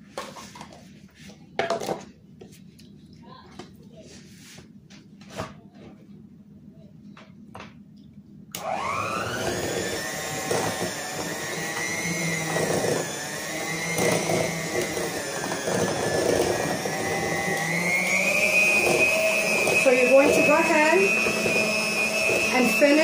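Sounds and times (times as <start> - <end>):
electric hand mixer whine: 8.6 - 23.0.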